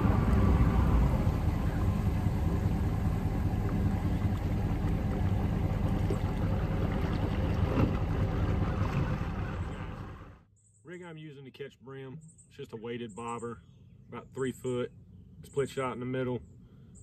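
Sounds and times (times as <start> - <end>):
water noise: 0.0 - 10.4
outboard motors droning: 0.0 - 10.5.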